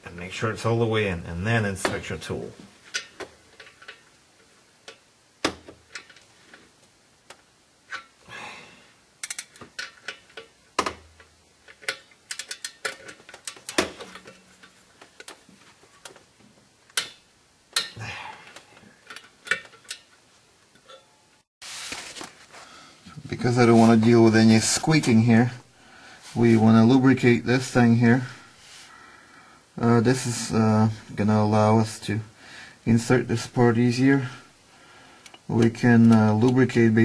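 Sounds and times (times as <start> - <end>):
hand ratchet clicking: 11.7 - 14.4
metal tools clinking: 20.8 - 21.2.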